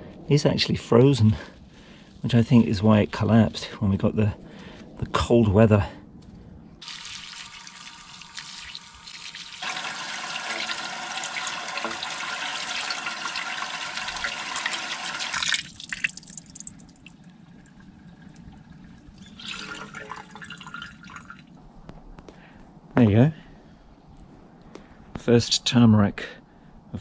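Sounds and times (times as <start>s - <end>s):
tap water splashing into sink: 6.8s - 16.4s
water trickling and dripping: 6.8s - 21.6s.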